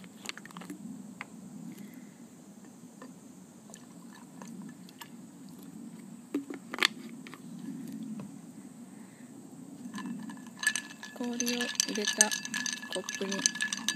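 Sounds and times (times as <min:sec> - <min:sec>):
liquid pouring over ice: 0:10.0 - 0:13.9.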